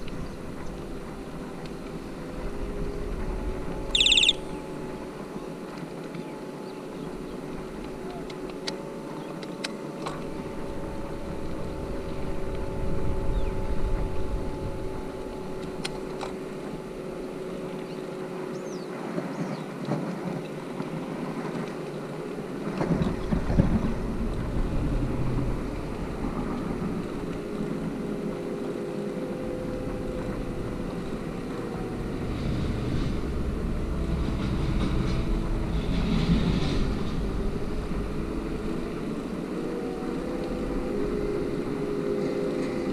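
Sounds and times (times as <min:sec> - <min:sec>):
bicycle rolling on road: 0:00.0 - 0:08.7, 0:15.2 - 0:42.0
wind buffeting microphone: 0:09.8 - 0:42.9.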